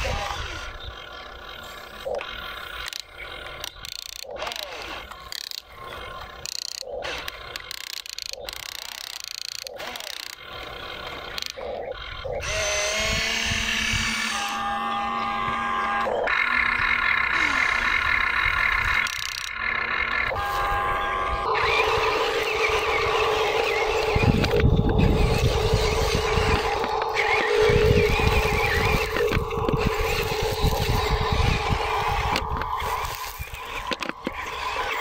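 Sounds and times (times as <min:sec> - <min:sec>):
electric motors whining: 0:00.0 - 0:35.0
sharp clicks: 0:02.0 - 0:11.7, 0:18.8 - 0:19.7, 0:21.5 - 0:35.0.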